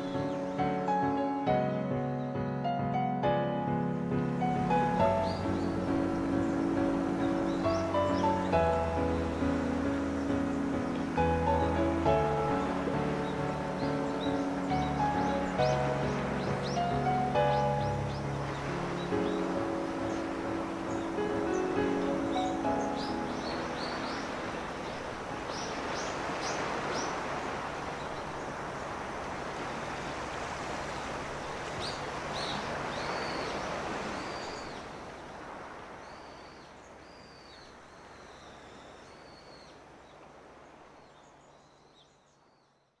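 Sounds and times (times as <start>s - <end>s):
surf washing against breakwater: 4.6s - 37.1s
birds chirping and calling: 4.8s - 27.2s.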